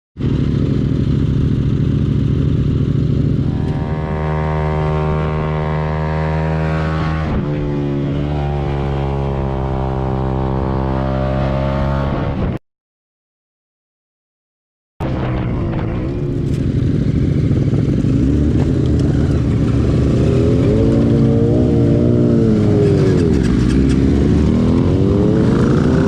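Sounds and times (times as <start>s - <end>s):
motorcycle engine idling: 0.2s - 5.1s, 16.1s - 20.4s.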